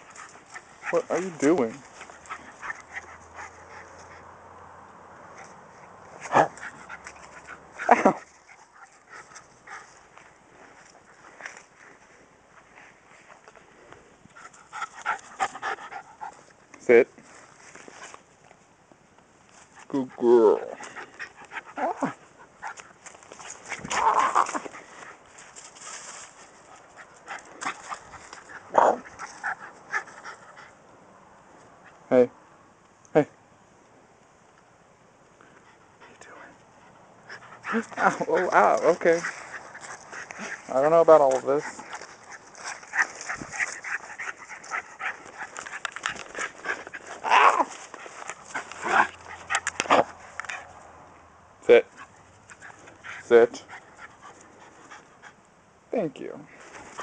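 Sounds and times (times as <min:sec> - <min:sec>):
dog making sounds in play: 0:00.0 - 0:11.6, 0:14.3 - 0:16.6, 0:19.5 - 0:30.9, 0:35.5 - 0:51.1, 0:51.8 - 0:55.6, 0:56.6 - 0:57.0
dog barking: 0:28.7 - 0:29.0.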